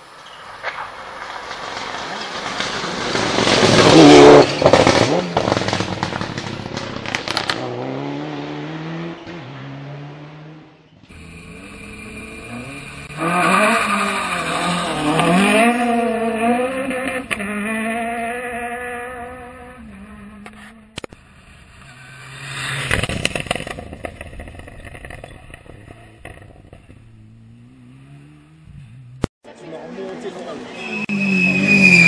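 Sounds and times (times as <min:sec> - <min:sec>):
sharp cracks: 0:00.6 - 0:07.8, 0:22.6 - 0:27.0
rally car engine at full throttle: 0:01.2 - 0:32.0.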